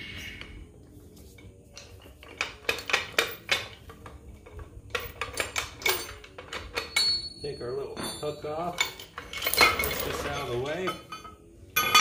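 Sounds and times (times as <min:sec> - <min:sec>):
metal chain clinking and clanking: 0:01.4 - 0:12.0.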